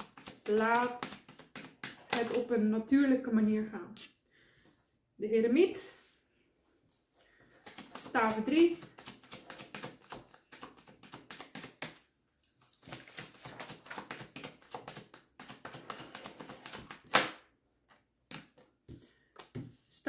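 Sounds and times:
cards slapping: 0.0s - 2.4s, 7.6s - 17.4s
cards shuffling: 0.0s - 2.5s, 7.5s - 17.2s.

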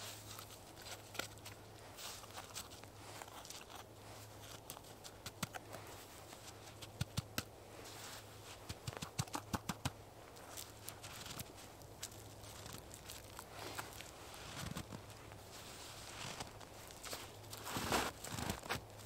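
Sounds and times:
footsteps crunching in deep snow: 10.3s - 18.9s.

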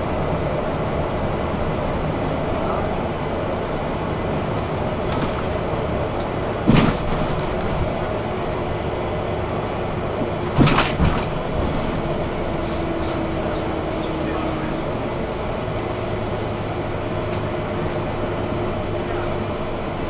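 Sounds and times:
bus rumbling in motion: 0.0s - 20.0s
loud clunks: 6.6s - 8.0s, 10.5s - 12.1s.

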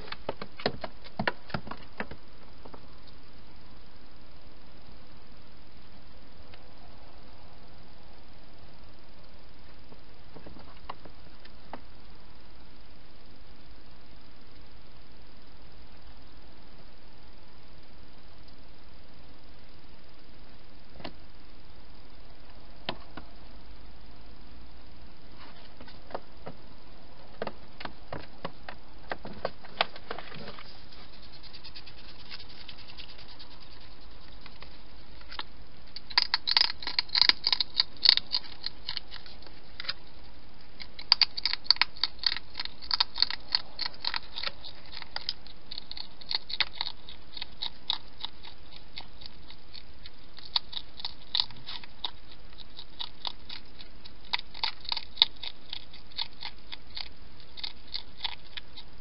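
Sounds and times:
hedgehog chewing and crunching: 27.4s - 59.0s.

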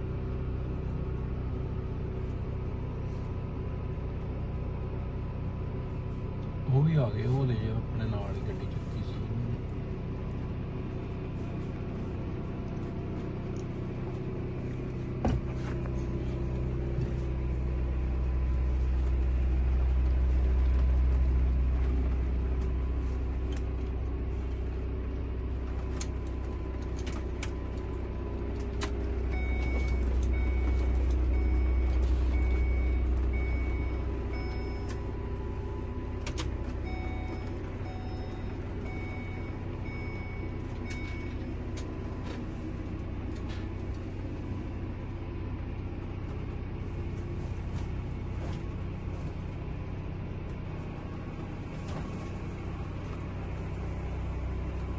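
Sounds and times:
vehicle road noise rumble: 0.0s - 54.9s.

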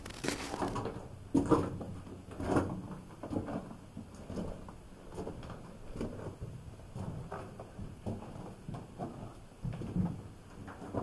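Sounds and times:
footsteps on loose stones: 0.0s - 1.0s.

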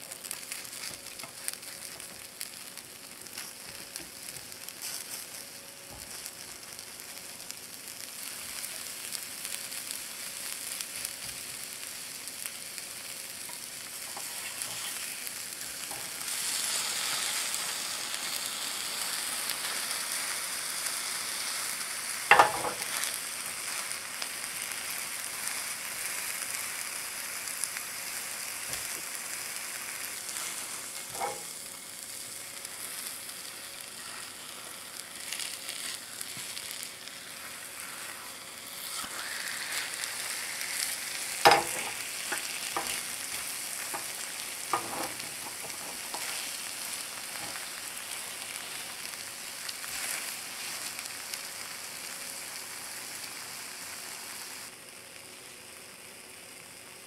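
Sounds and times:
omelet sizzling in pan: 0.0s - 57.0s.

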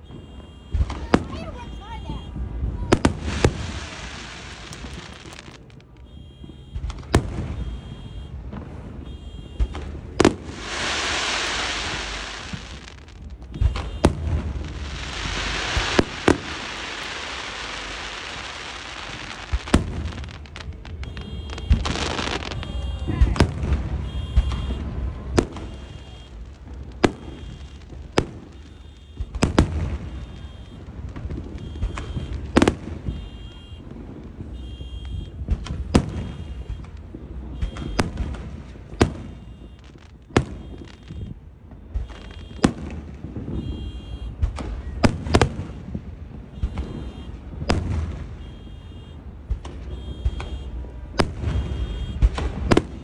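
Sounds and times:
faint car alarm beeping: 0.0s - 2.6s, 4.6s - 8.4s, 9.0s - 9.8s, 20.3s - 26.5s, 27.2s - 29.4s, 30.0s - 33.9s, 34.6s - 35.4s, 36.2s - 38.2s, 39.2s - 42.7s, 43.6s - 45.0s, 46.5s - 47.4s, 48.4s - 49.2s, 49.9s - 50.8s, 51.5s - 52.2s
fireworks bangs: 0.0s - 53.0s
fireworks hiss: 2.9s - 5.9s, 9.6s - 33.2s.

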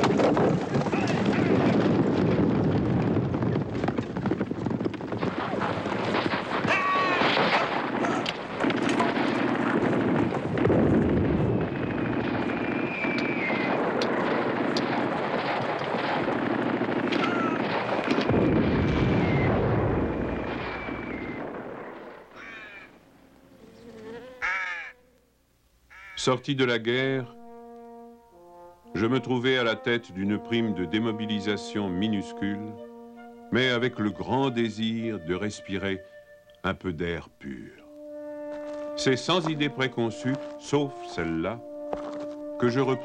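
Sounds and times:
explosions: 0.0s - 23.0s
gunfire: 4.8s - 22.7s
falling whistles: 11.4s - 13.8s, 18.3s - 22.9s
crows cawing: 22.2s - 23.0s, 23.8s - 25.0s, 25.9s - 26.3s.

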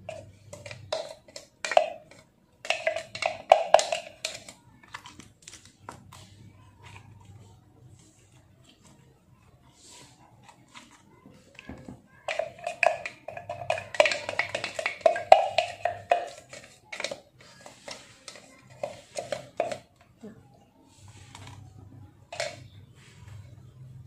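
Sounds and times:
spatula tapping glass jar: 12.3s - 17.3s.

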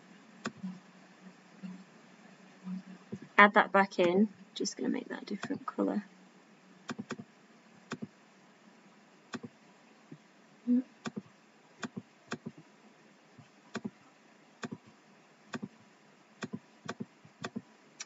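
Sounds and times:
computer mouse clicking: 11.8s - 12.6s, 16.4s - 17.6s.

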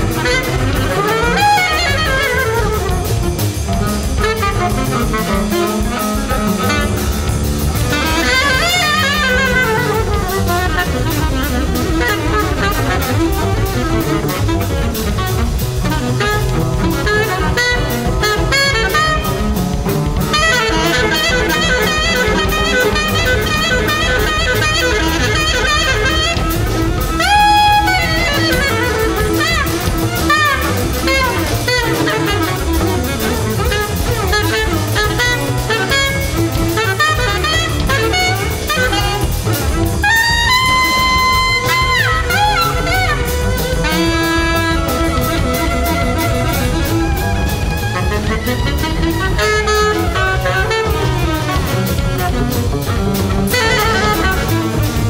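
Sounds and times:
alto saxophone playing: 0.0s - 55.0s
double basses: 0.0s - 55.0s
drum kit: 0.0s - 55.0s.

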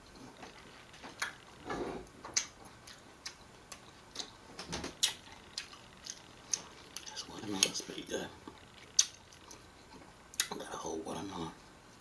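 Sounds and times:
mouth chewing clicks and smacks: 2.3s - 4.3s, 5.0s - 7.8s, 8.5s - 10.6s.

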